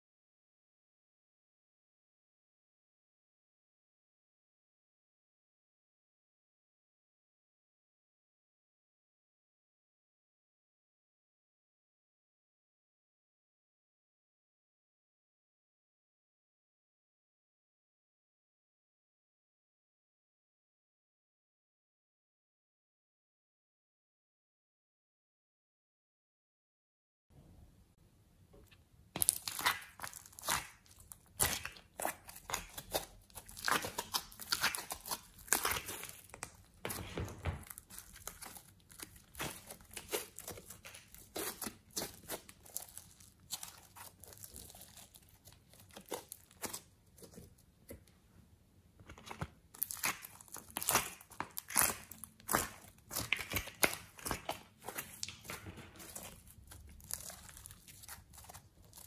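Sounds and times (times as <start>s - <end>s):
sticky slime crackles and pops: 29.2s - 37.0s, 37.6s - 47.4s, 49.7s - 59.0s.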